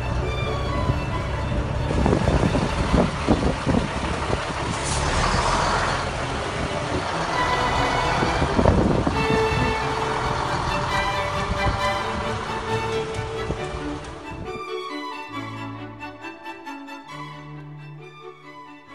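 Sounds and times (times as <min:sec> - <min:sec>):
truck diesel engine running: 0:00.0 - 0:14.5
steady music tones: 0:00.0 - 0:18.9.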